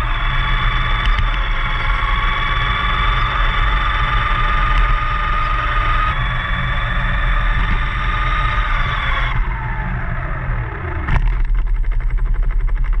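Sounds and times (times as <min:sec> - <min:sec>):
model car motor whine: 0:00.0 - 0:13.0
fast even rattle: 0:11.0 - 0:13.0.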